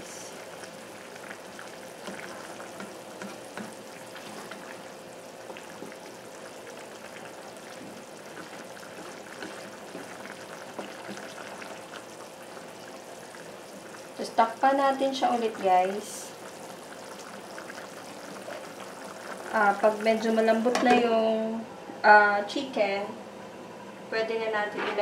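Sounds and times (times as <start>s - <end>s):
chicken simmering in broth: 0.0s - 20.1s
faint steady hum: 0.0s - 25.0s
wooden spatula scraping a pan: 2.0s - 4.7s, 8.3s - 11.8s.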